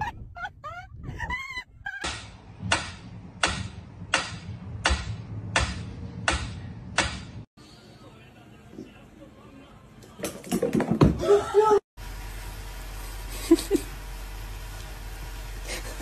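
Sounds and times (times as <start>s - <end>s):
high wavering cries: 0.0s - 2.1s.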